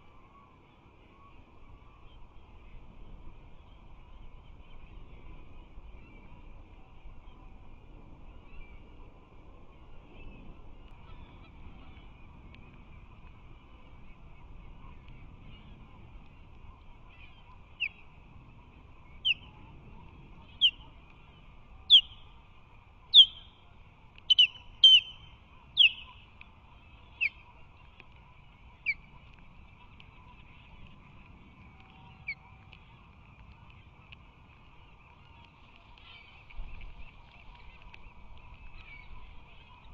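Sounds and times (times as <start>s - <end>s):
osprey calling: 17.1s - 18.2s, 19.0s - 19.6s, 20.4s - 21.0s, 21.9s - 22.4s, 23.0s - 30.7s.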